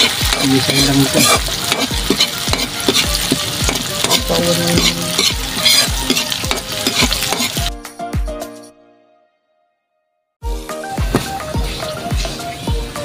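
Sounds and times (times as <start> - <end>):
food sizzling in hot oil: 0.0 - 7.7
metal spatula stirring: 0.0 - 7.7.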